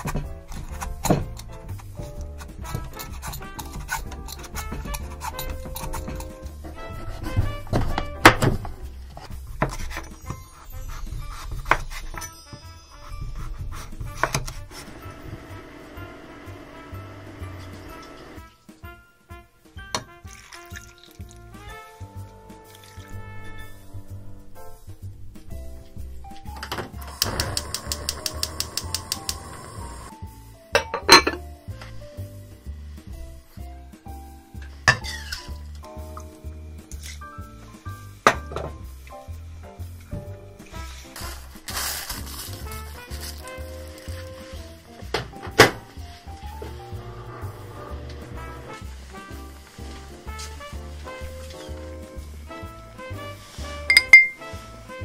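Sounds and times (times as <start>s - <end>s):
background music: 0.0s - 55.0s
stove igniter clicking: 27.0s - 29.9s
gas hissing: 27.0s - 30.3s
glassware clinking: 30.8s - 31.4s, 53.9s - 54.4s.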